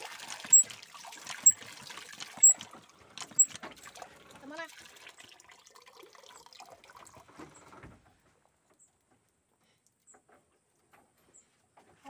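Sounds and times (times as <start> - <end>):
faint high chirp: 2.4 - 2.6.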